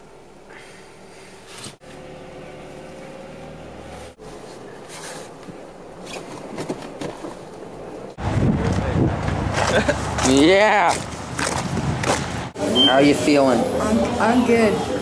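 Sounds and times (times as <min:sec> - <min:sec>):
car engine hum: 0:01.8 - 0:05.0
road noise: 0:01.8 - 0:15.0.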